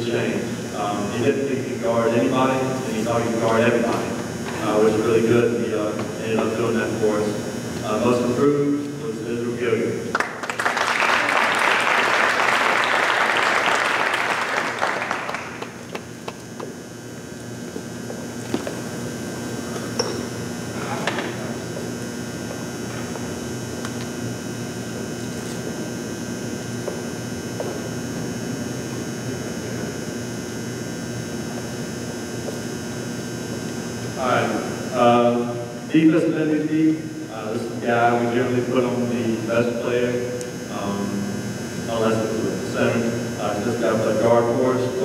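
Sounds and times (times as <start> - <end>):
constant hiss: 0.0 - 24.4, 31.6 - 45.0
low even hum: 0.0 - 45.0
audience applauding: 10.1 - 16.4.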